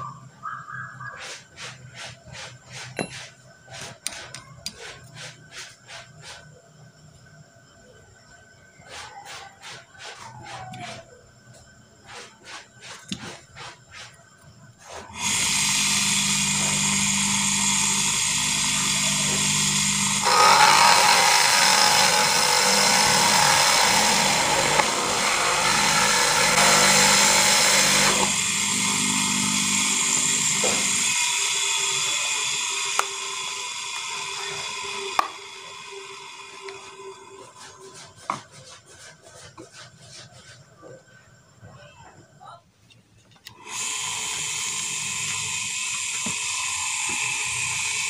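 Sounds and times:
electric motor running: 14.9s - 38.0s, 43.5s - 48.0s.

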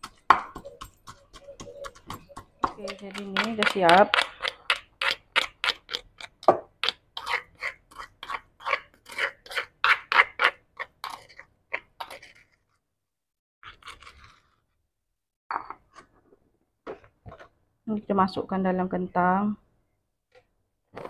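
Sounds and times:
pestle pounding in stone mortar: 0.0s - 11.3s
scraping knocks in mortar: 0.0s - 12.8s.

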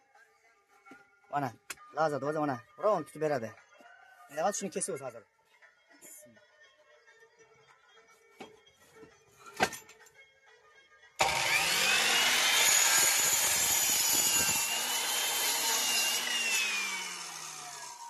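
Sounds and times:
mitre saw cutting wood: 11.2s - 18.0s.

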